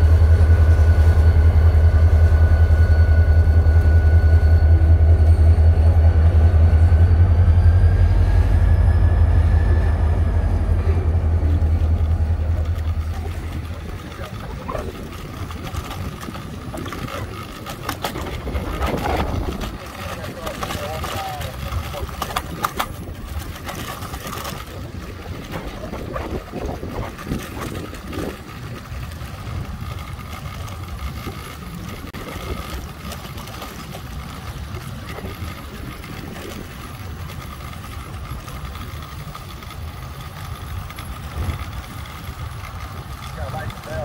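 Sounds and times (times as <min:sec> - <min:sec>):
faint high whine: 0:00.0 - 0:14.8
train engine running: 0:00.0 - 0:44.0.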